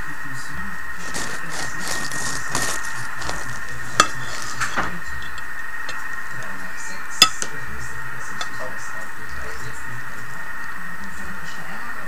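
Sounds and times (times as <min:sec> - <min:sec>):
knife slicing through crust: 0:01.0 - 0:04.7.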